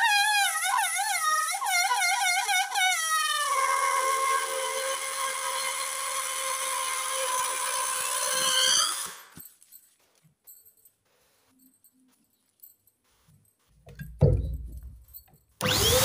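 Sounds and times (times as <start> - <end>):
air squealing from balloon neck: 0.0 - 9.4.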